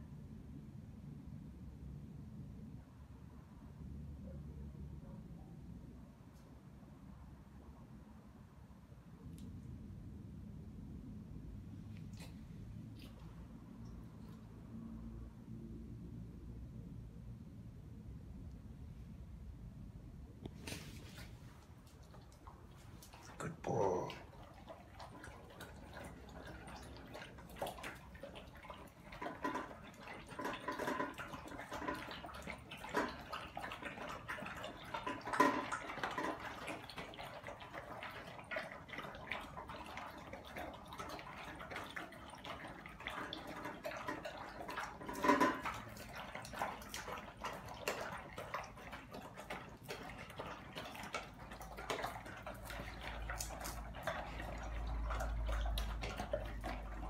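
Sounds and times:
dogs chewing and licking: 11.8 - 14.8, 20.4 - 57.0
clanks against metal bowls: 29.1 - 36.5, 43.5 - 46.6.

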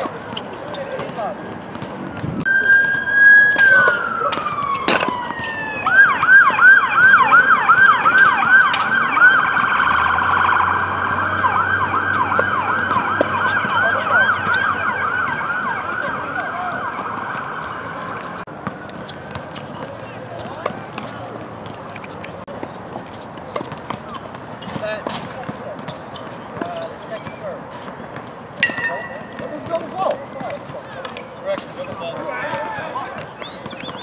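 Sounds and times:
emergency siren wailing and yelping: 2.5 - 18.5.

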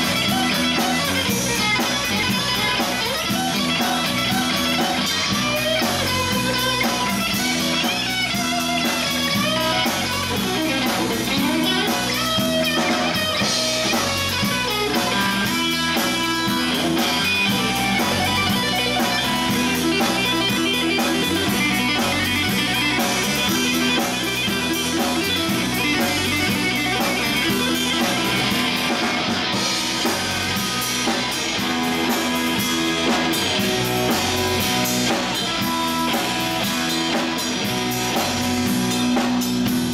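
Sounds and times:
drum kit: 0.0 - 39.9
electric guitars: 0.0 - 39.9.

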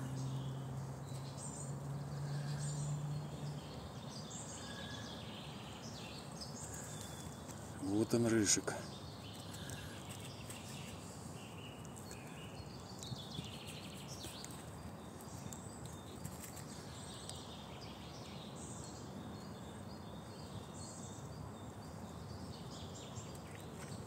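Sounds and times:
low background noise: 0.0 - 24.0
small birds chirping: 0.0 - 24.0
squirrel rustling in leaves: 13.4 - 17.2.

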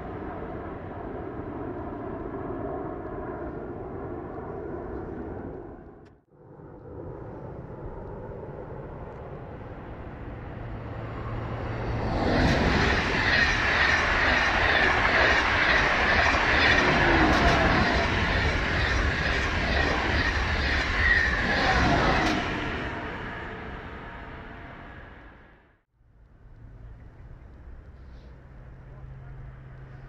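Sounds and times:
high-speed train passing: 8.2 - 25.8.

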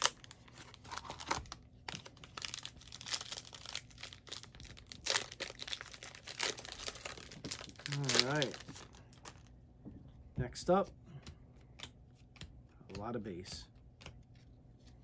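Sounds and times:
plastic wrapper crinkling: 0.0 - 9.5.

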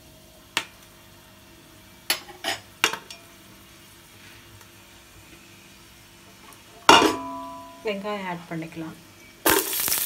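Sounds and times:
spices sizzling in oil: 0.0 - 10.0.

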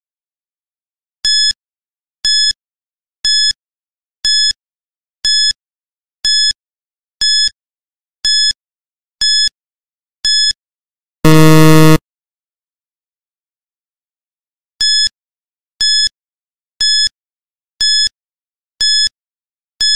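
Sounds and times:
high electronic beeps: 11.3 - 12.0
low buzzer: 11.3 - 12.0.

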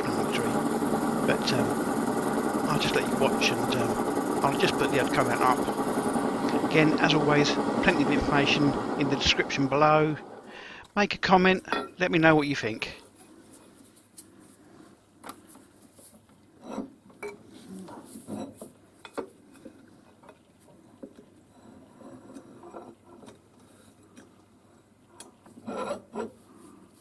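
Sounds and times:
metal rubbing: 0.0 - 10.3, 25.6 - 26.4.

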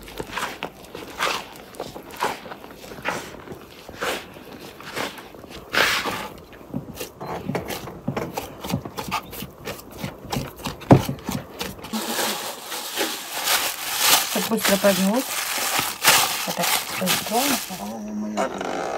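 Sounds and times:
plastic bag rustling: 0.0 - 6.4, 11.1 - 18.2
dough slapping and squishing: 0.0 - 18.0.

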